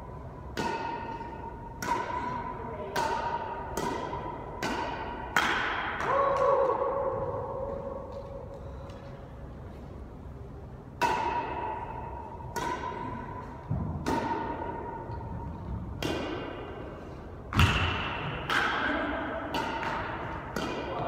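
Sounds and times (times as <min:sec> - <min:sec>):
racket hitting shuttlecock: 0:00.5 - 0:07.0, 0:10.9 - 0:21.0.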